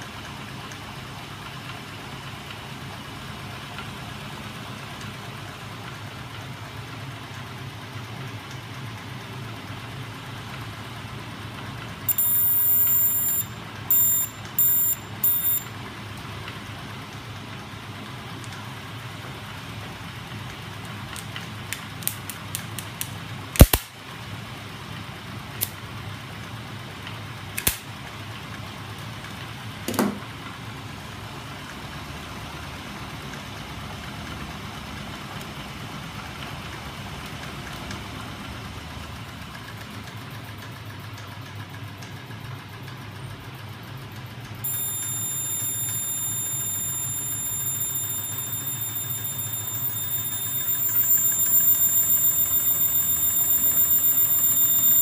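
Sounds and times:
high-pitched electronic beeping: 0:12.1 - 0:15.7, 0:44.6 - 0:55.0.

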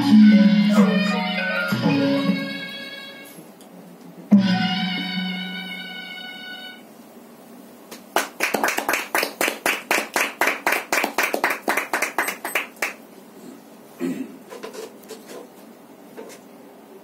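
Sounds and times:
audience clapping: 0:07.9 - 0:13.0.

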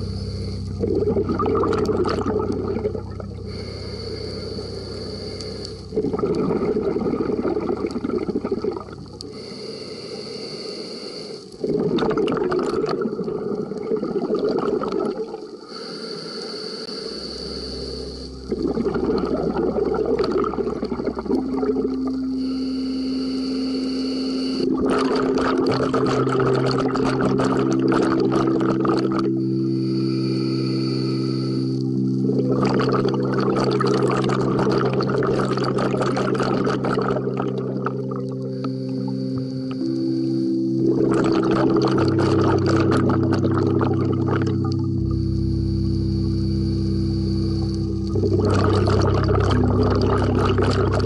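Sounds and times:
rush of bubbles: 0:00.0 - 0:04.4, 0:05.0 - 0:09.4, 0:11.6 - 0:15.8, 0:18.4 - 0:22.6, 0:24.5 - 0:29.4, 0:32.2 - 0:38.4, 0:40.8 - 0:44.9, 0:48.1 - 0:51.0
diver inhaling through regulator: 0:00.0 - 0:13.8, 0:14.6 - 0:51.0.

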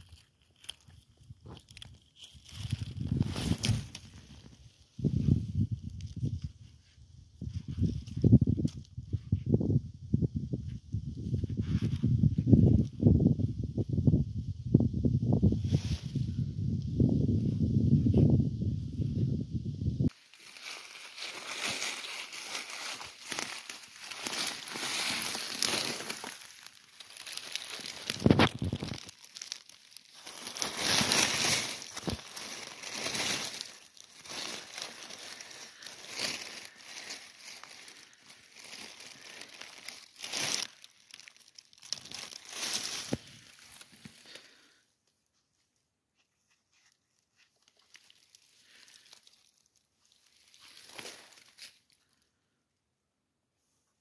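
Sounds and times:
dry leaves rustling and crackling: 0:00.0 - 0:04.8, 0:20.1 - 0:44.8, 0:47.3 - 0:52.0.

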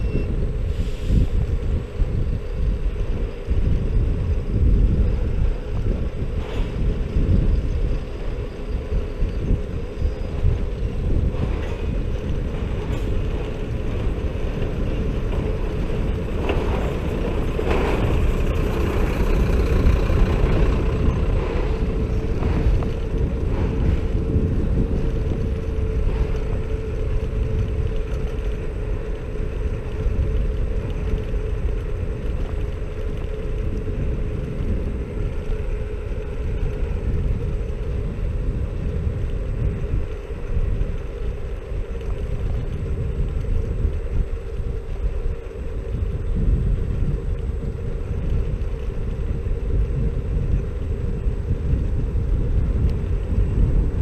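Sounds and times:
scooter road rumble: 0:00.0 - 0:54.0
wind on microphone: 0:00.0 - 0:54.0
truck passing: 0:11.3 - 0:28.5.

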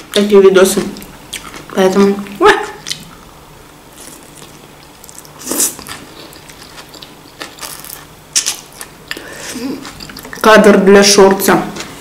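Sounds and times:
soft chewing: 0:01.0 - 0:03.2, 0:03.9 - 0:10.4
crisp bite of salad: 0:03.9 - 0:10.4.

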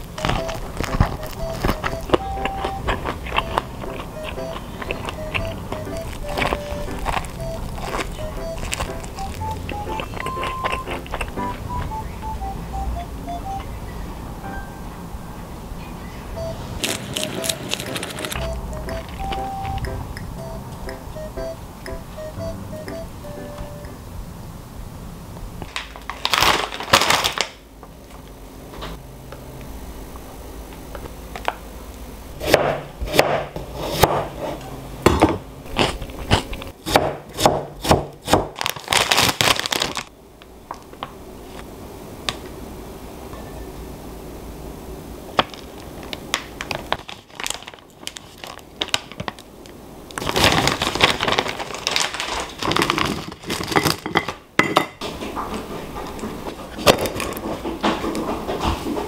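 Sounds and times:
plastic packaging crinkling: 0:00.0 - 0:11.3, 0:16.8 - 0:19.3, 0:25.7 - 0:27.6, 0:38.5 - 0:40.1, 0:45.5 - 0:49.5, 0:50.1 - 0:54.0.

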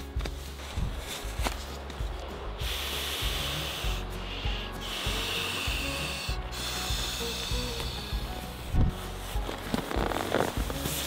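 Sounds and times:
handling rustle: 0:00.0 - 0:02.3
breaths blowing into pillow valve: 0:02.5 - 0:11.0.

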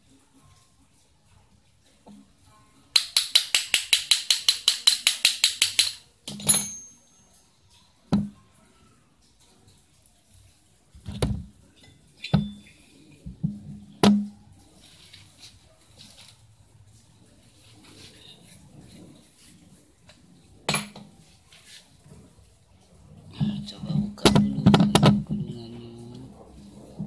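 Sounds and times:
ratchet wrench clicking rapidly: 0:03.0 - 0:06.0
metal parts knocking: 0:03.0 - 0:07.0
ringing metal clink: 0:06.3 - 0:07.5.

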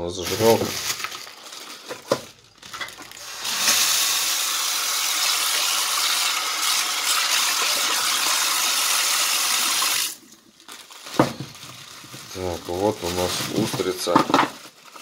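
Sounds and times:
tap water running into sink: 0:03.4 - 0:10.2.

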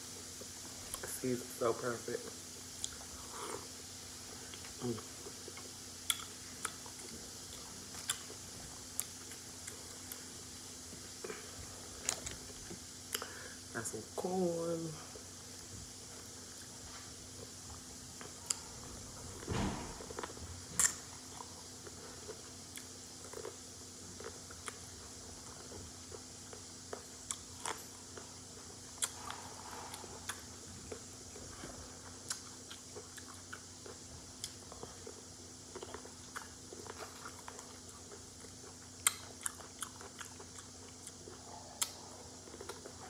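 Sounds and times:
faint steady hum: 0:00.0 - 0:43.0
chewing and lip smacks: 0:04.5 - 0:10.2, 0:20.1 - 0:28.3, 0:28.9 - 0:43.0.

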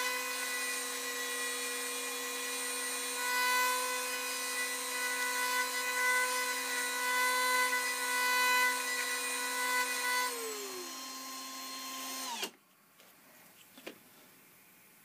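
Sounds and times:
power tool motors whining: 0:00.0 - 0:12.6.

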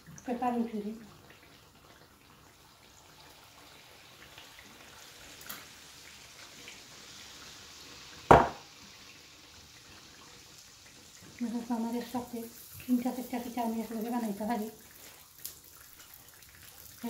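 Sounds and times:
hot oil sizzling and bubbling: 0:00.0 - 0:17.0
sharp knock: 0:08.3 - 0:08.6.

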